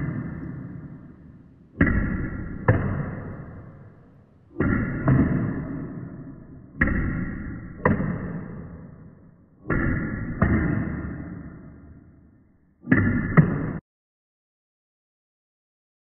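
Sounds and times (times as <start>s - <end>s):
slowed table tennis knocks: 0.0s - 6.2s.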